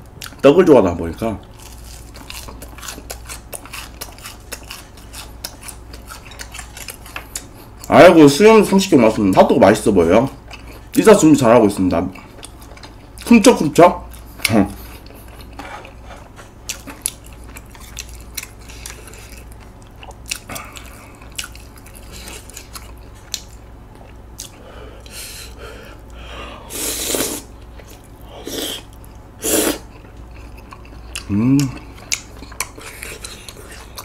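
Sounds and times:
wet chewing and biting: 1.5s - 7.9s, 14.1s - 24.6s, 27.1s - 34.0s.

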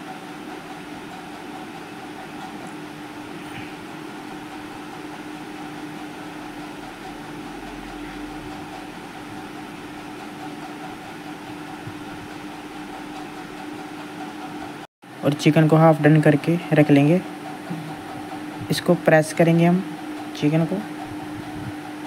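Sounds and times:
constant hum: 1.5s - 13.4s.

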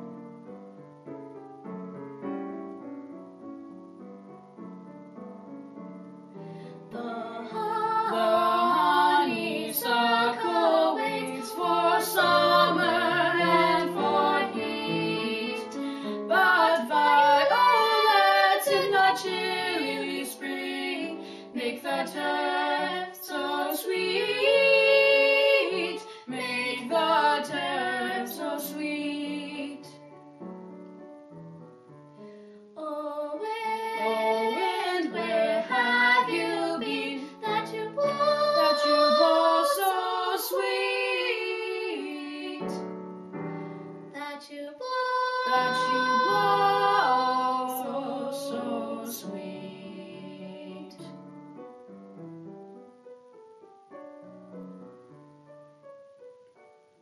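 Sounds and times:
piano accompaniment: 0.0s - 44.2s, 45.4s - 57.0s
girl and boy singing duet: 6.7s - 30.0s, 32.8s - 42.9s, 44.1s - 51.2s.

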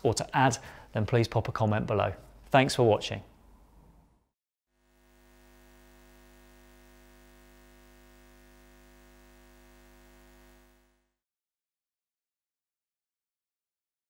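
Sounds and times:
faint electrical hum: 4.8s - 11.0s.

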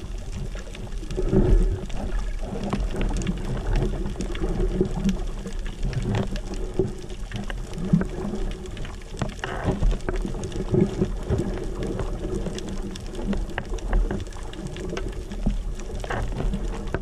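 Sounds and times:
clicks and crackles: 0.0s - 17.0s
underwater water movement: 0.0s - 17.0s.

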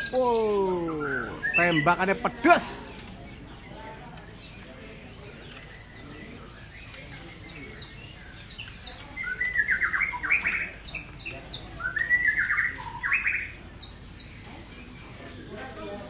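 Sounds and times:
loud bird call: 0.0s - 3.2s
songbirds chirping: 0.0s - 16.0s.

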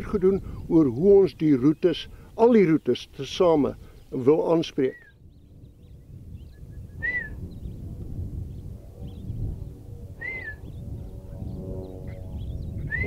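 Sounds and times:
wind rumble on microphone: 0.0s - 13.0s
bird whistled note rising and falling: 5.9s - 7.8s, 10.2s - 10.8s, 12.1s - 13.0s.

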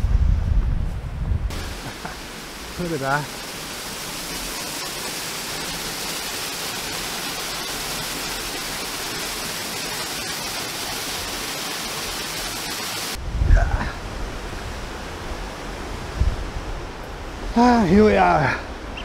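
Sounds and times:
wind gust buffeting microphone: 0.0s - 1.8s, 13.2s - 17.5s
waterfall rushing: 1.5s - 16.1s.

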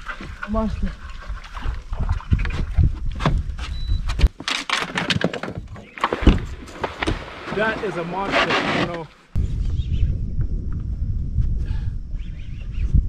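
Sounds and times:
wind rumbling on microphone: 0.0s - 4.3s, 9.3s - 13.0s.

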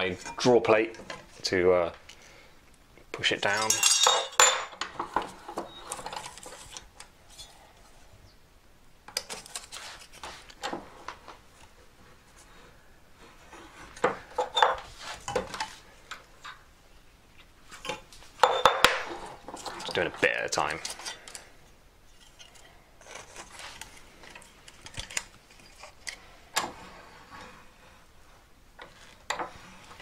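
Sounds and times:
metallic clinks and scrapes: 3.5s - 4.8s.

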